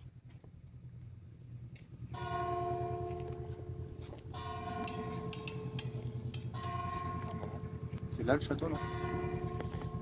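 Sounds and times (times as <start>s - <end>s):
low steady rumble: 0.0s - 10.0s
church bell ringing: 2.1s - 10.0s.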